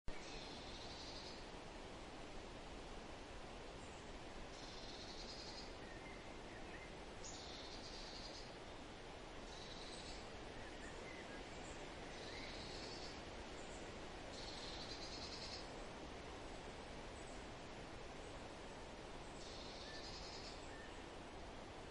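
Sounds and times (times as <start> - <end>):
faint bird chirps: 0.1 - 1.5, 3.8 - 15.8, 19.2 - 21.1
steady hiss: 0.1 - 21.9.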